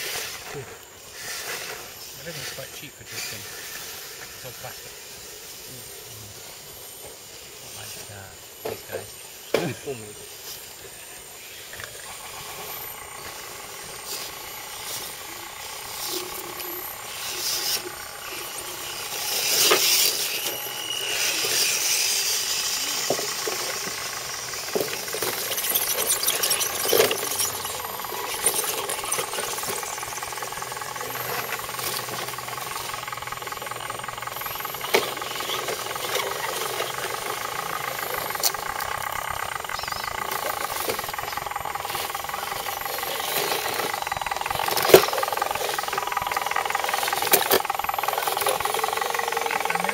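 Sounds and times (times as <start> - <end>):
rushing hiss: 0.0 - 6.8
electric motors whining: 0.0 - 49.9.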